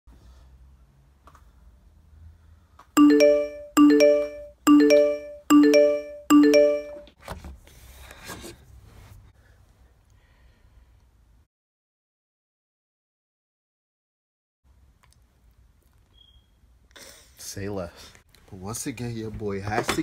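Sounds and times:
phone notification chime: 3.0s - 7.1s.

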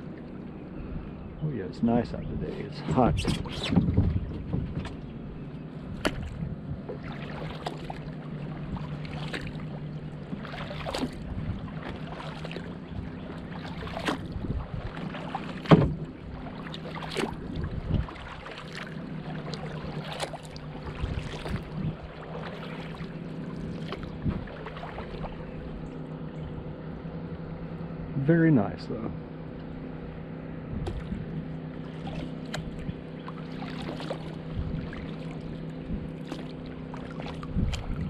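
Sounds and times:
steady low hum: 0.0s - 38.0s
kayak paddle splashing water: 5.9s - 26.4s, 30.8s - 38.0s.

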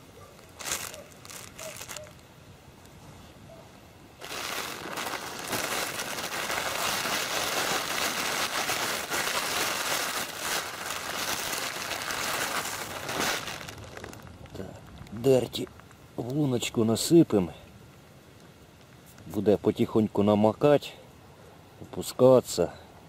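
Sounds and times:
bag rustling and crinkling: 0.3s - 2.2s, 4.2s - 15.0s.

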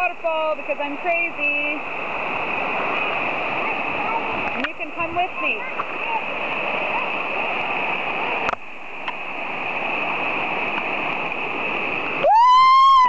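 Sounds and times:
small waterfall rushing: 0.0s - 13.0s.

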